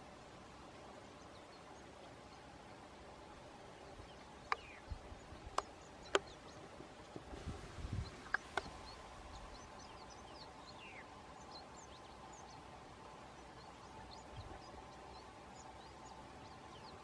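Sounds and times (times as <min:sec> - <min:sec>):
faint steady high hum: 0:00.0 - 0:17.0
small birds chirping: 0:00.0 - 0:17.0
sharp clicks: 0:04.5 - 0:04.7.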